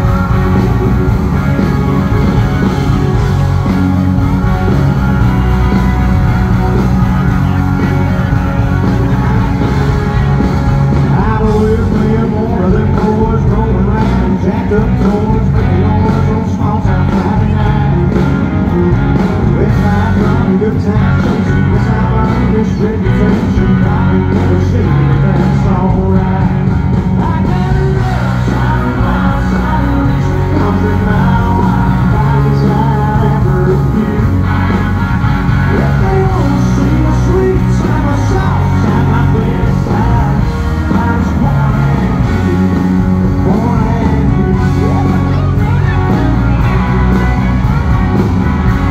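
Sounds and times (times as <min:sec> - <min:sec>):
electric guitars: 0:00.0 - 0:48.9
live country band: 0:00.0 - 0:48.9
man singing: 0:10.9 - 0:34.9, 0:35.5 - 0:47.2.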